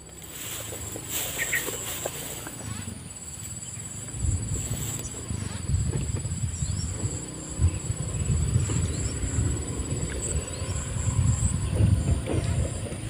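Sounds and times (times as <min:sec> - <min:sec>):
insect trill: 0:00.0 - 0:13.0
wind buffeting microphone: 0:00.0 - 0:13.0.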